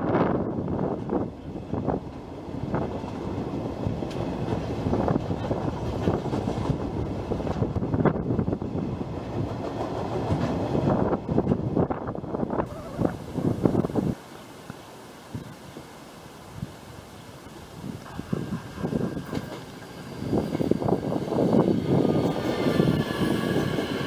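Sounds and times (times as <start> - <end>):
steel wheels clacking over rail joints: 18.0 - 24.0.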